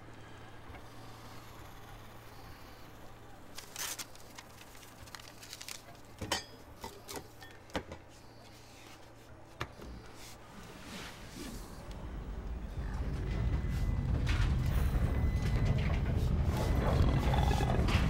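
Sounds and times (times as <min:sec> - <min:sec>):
low hum: 0:09.9 - 0:18.0.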